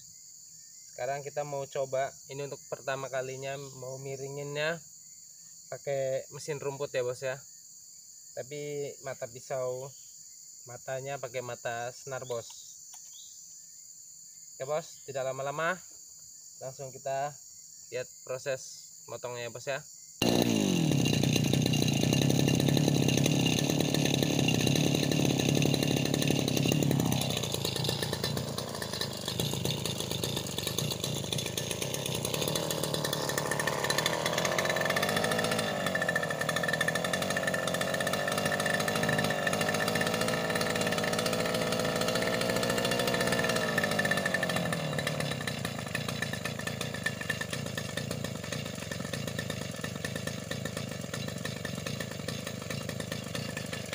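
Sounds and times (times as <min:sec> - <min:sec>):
brush cutter cutting grass: 0:20.2 - 0:53.9.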